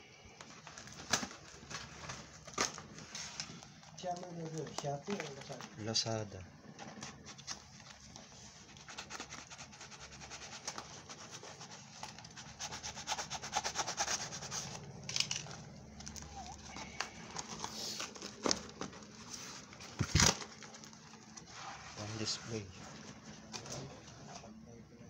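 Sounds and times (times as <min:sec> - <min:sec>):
plastic wrapping crinkling: 0:00.3 - 0:12.6, 0:14.4 - 0:24.4
rustles and scrapes: 0:06.6 - 0:24.6.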